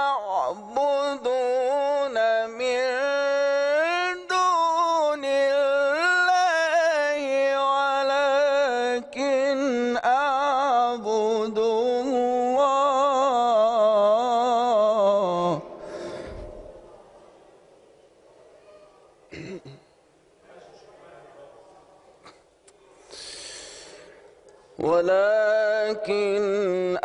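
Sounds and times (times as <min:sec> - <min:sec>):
man chanting melodically: 0:00.0 - 0:15.8, 0:24.8 - 0:27.0.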